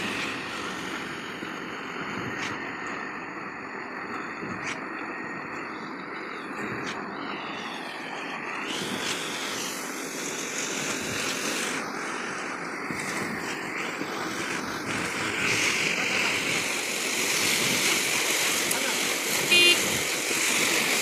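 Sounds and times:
wet concrete gushing: 0:00.0 - 0:03.1, 0:08.6 - 0:21.0
concrete pump running: 0:00.0 - 0:21.0.

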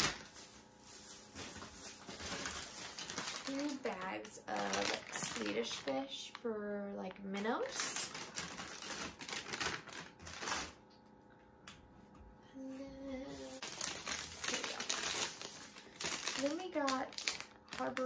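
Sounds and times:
plastic bags crinkling: 0:00.0 - 0:10.8, 0:13.4 - 0:18.0
woman humming: 0:12.4 - 0:13.6.

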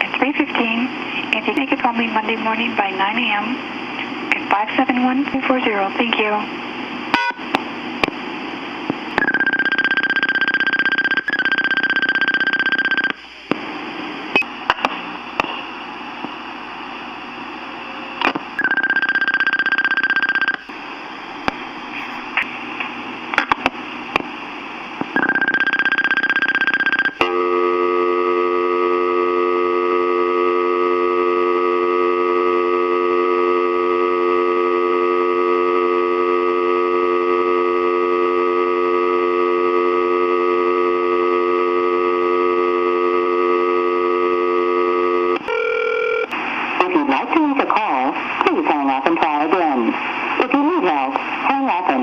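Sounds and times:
tape hiss: 0:00.0 - 0:52.0
short telephone tone: 0:09.2 - 0:13.2, 0:25.2 - 0:46.3
telephone dial tone: 0:09.2 - 0:13.2, 0:18.6 - 0:20.6, 0:25.2 - 0:46.3.

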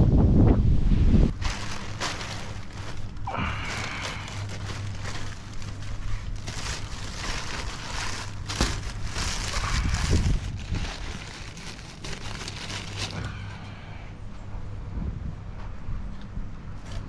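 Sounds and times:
plastic sheeting crinkling: 0:01.3 - 0:13.9.

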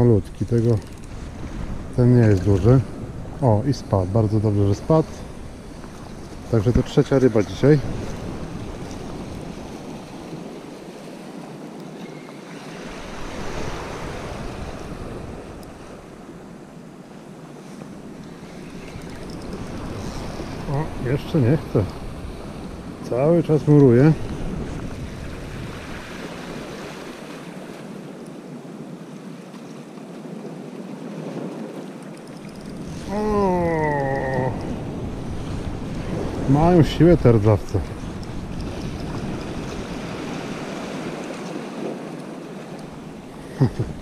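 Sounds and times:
wind rushing over microphone: 0:00.0 - 0:11.4, 0:12.8 - 0:16.9, 0:17.9 - 0:27.8, 0:32.4 - 0:44.0
small waves lapping on rocks: 0:17.5 - 0:28.2, 0:28.8 - 0:44.0.

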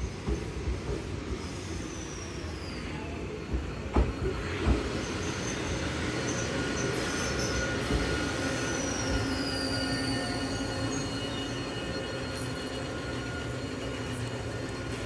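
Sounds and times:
electric train pulling in: 0:00.0 - 0:15.0
sharp knocks from train wheels: 0:00.2 - 0:01.2, 0:03.5 - 0:04.9
high brake squeal: 0:01.4 - 0:03.2, 0:04.2 - 0:15.0.

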